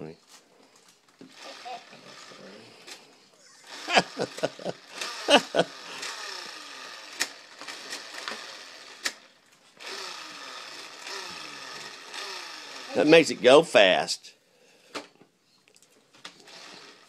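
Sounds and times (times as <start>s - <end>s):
toy rev grip clicking and revving: 1.2s - 3.0s, 3.6s - 13.4s, 16.3s - 17.0s.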